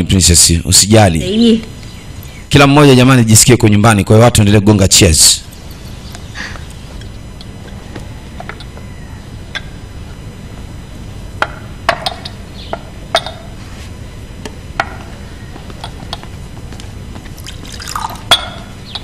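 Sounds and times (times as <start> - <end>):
tea being poured: 17.4 - 18.3
teacups clinking: 17.4 - 18.7.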